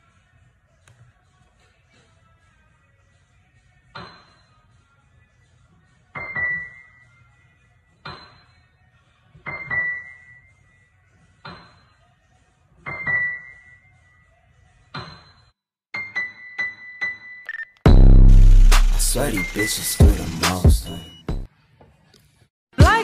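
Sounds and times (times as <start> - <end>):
electric keyboard high notes: 17.9 - 21.3.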